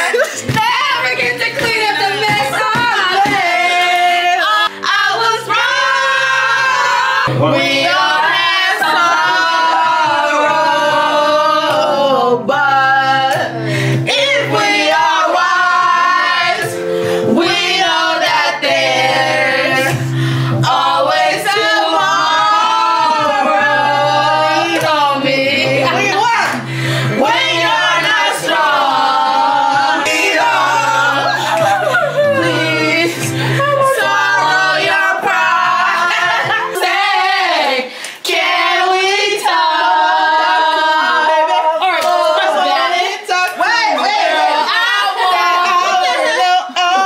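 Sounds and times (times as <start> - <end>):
group of people singing: 0.0 - 47.0.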